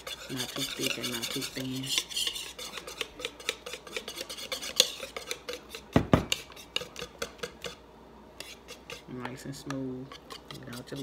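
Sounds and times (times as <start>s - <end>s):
whisk clicking against bowl: 0.0s - 7.8s, 8.4s - 11.0s.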